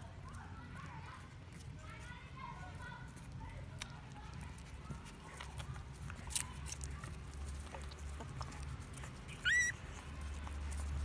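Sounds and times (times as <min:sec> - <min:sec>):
puppies suckling clicks: 0:00.1 - 0:11.0
puppy high squeal: 0:09.3 - 0:10.0.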